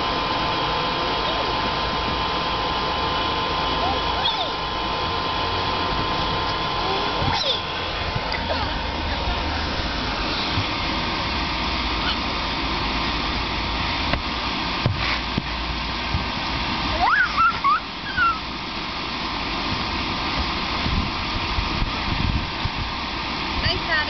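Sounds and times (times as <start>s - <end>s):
electric blower fan running: 0.0s - 24.0s
short rising squeals: 7.2s - 7.9s, 16.9s - 18.5s.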